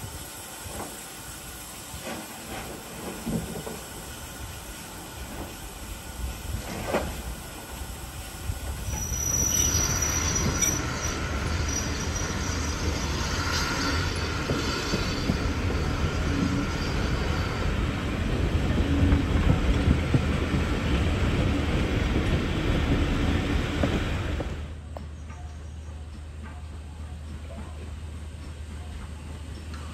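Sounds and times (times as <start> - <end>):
train wheels rumbling on rails: 0.0 - 29.9
high-pitched flange squeal: 8.8 - 17.9.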